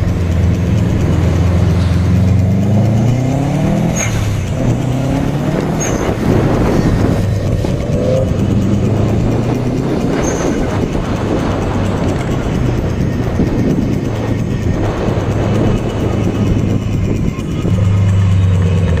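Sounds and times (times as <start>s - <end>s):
car engine accelerating: 0.0s - 19.0s
road and wind noise: 0.0s - 19.0s.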